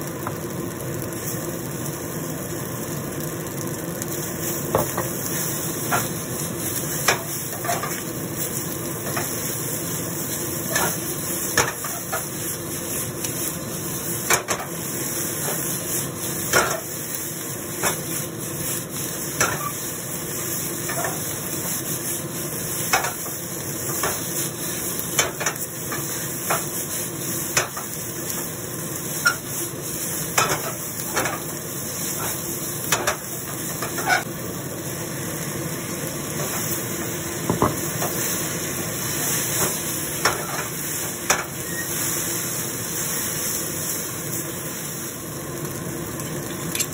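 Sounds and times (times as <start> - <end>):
rice sizzling in a wok: 0.0 - 46.9
spatula scraping a pan: 4.5 - 9.6, 10.6 - 13.6, 14.2 - 17.0, 17.8 - 19.9, 20.8 - 22.2, 22.8 - 23.3, 29.1 - 29.6, 30.2 - 31.4, 32.0 - 34.3, 39.2 - 43.6.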